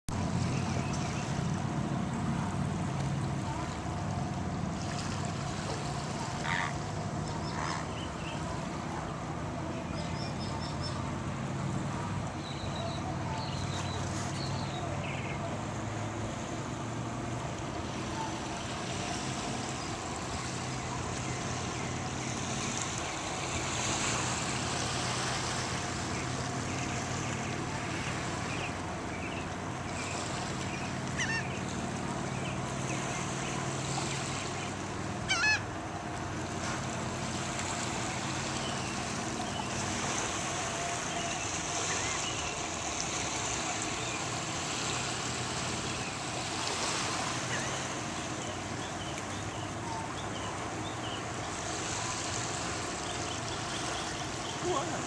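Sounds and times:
small waves lapping on shore: 0:00.1 - 0:55.0
gull calls: 0:06.4 - 0:06.9, 0:31.1 - 0:31.6, 0:35.2 - 0:35.7.

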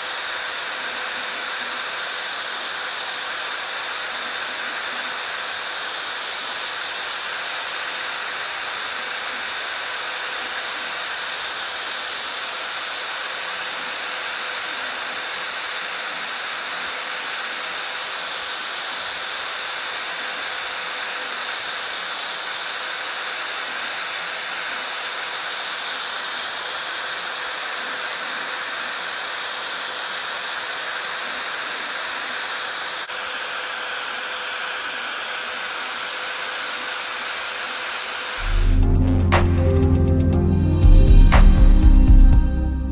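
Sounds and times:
router spindle whine: 0:00.0 - 0:41.0
metal cutting noise: 0:00.0 - 0:42.9.

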